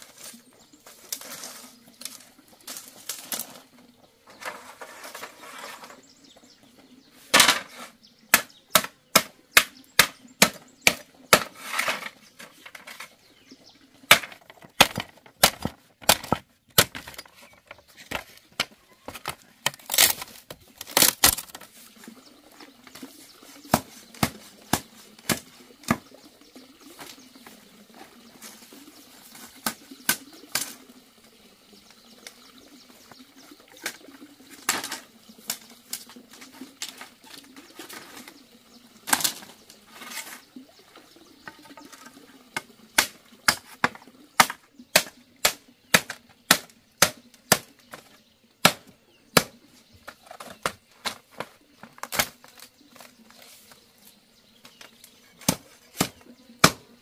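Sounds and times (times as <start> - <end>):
machete chopping bamboo: 8.3 - 11.7, 14.1 - 17.3, 23.7 - 26.0, 43.0 - 49.6, 55.4 - 56.9.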